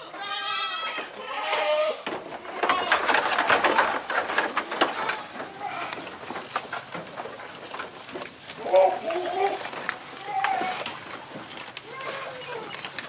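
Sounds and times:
goats bleating: 0.0 - 3.4, 4.8 - 6.3, 8.5 - 13.0
goats crunching leafy fodder: 0.0 - 13.0.

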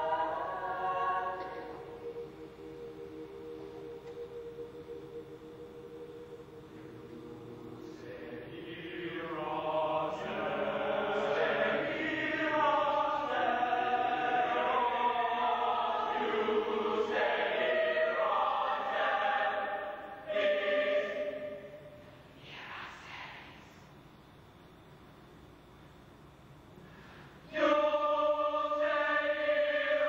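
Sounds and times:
choir singing sustained chords: 0.0 - 25.9, 26.6 - 30.0.

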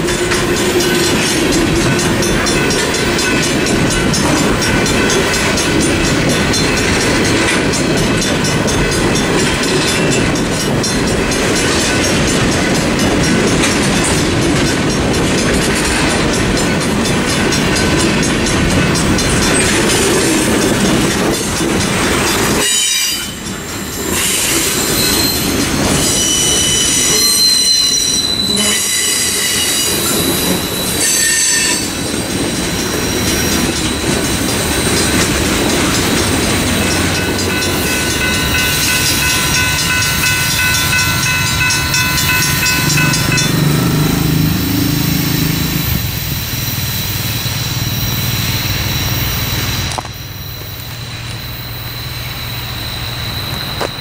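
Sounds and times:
freight train rumbling past: 0.0 - 54.0
train wheel squeal: 0.0 - 54.0.

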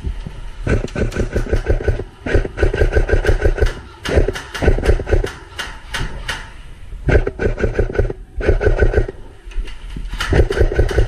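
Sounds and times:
airsoft guns firing bursts: 0.7 - 5.7, 7.1 - 9.2, 10.2 - 11.0.

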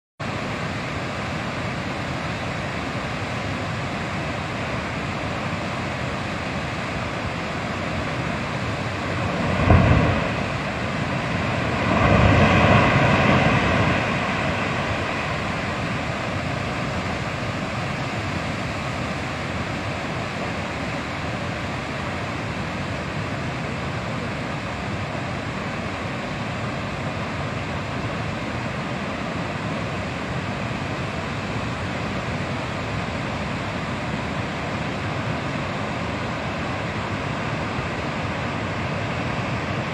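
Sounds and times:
floodwater rushing: 0.2 - 39.9
sudden crash: 9.5 - 10.5.

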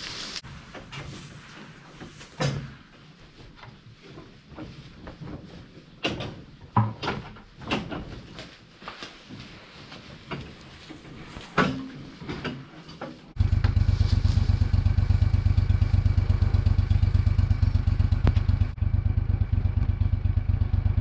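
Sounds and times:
faint rustling: 0.0 - 6.6, 7.5 - 15.2
vehicle engine idling: 13.4 - 21.0.

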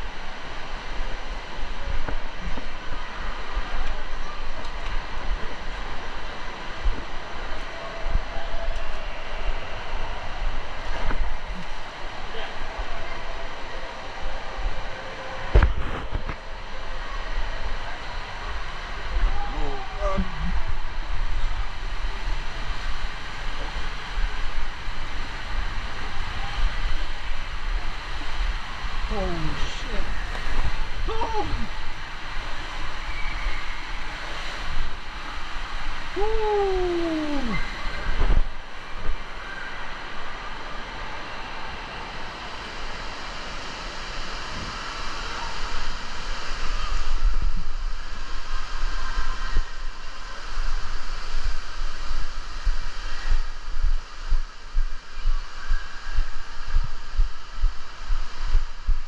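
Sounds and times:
rushing water: 0.0 - 59.0
wind buffeting microphone: 46.9 - 59.0.

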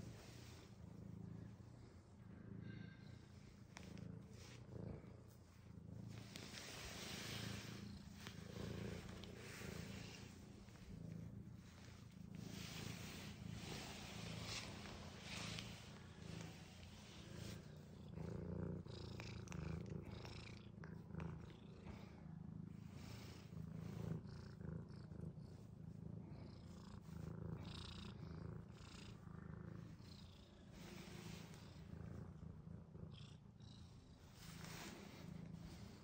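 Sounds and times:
cat purring: 0.0 - 36.0
scratchy rustles: 3.6 - 18.0.

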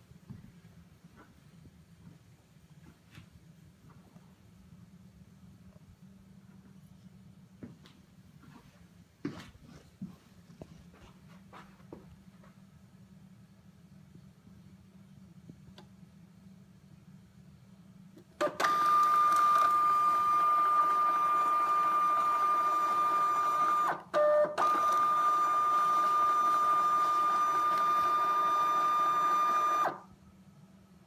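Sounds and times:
label printer motor whine: 18.4 - 30.1.

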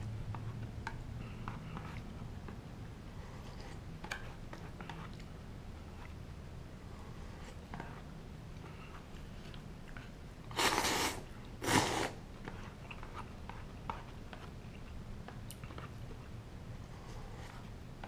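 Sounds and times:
quiet chewing: 3.2 - 6.2, 6.9 - 17.8
person slurping noodles: 10.5 - 12.2.

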